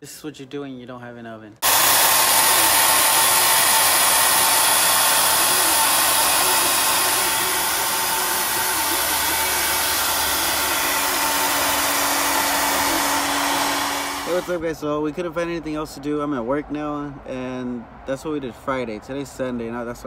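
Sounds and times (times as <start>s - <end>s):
hair dryer blowing air: 1.6s - 14.6s.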